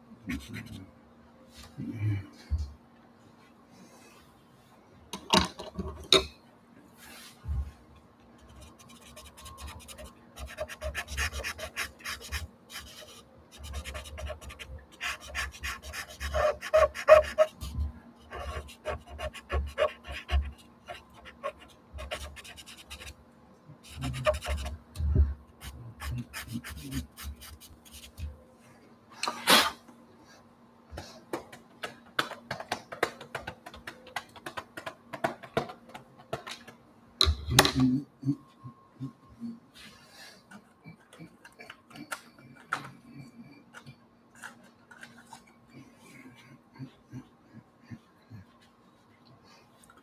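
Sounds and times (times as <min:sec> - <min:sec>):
faint steady hum: 0:00.0 - 0:50.0
pastel scratching on paper: 0:08.4 - 0:23.1, 0:23.9 - 0:24.8, 0:25.6 - 0:28.2.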